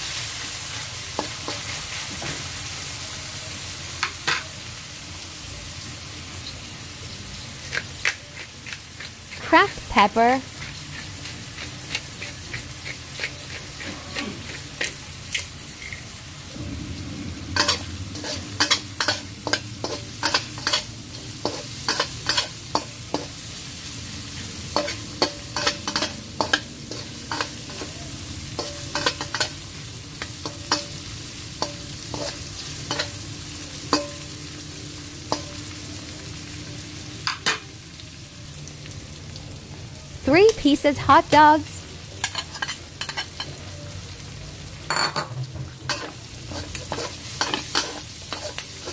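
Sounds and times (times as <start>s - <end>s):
food sizzling in hot oil: 0.0s - 48.9s
spatula scraping wok: 7.6s - 16.4s, 17.3s - 34.3s, 42.2s - 43.6s, 45.6s - 48.9s.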